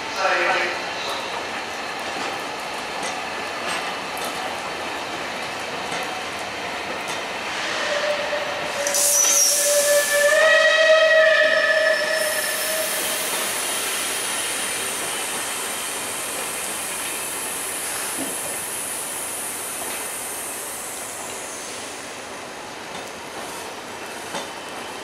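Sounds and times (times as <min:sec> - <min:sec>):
train coaches rolling: 0:00.0 - 0:18.8
high hiss: 0:08.7 - 0:10.3.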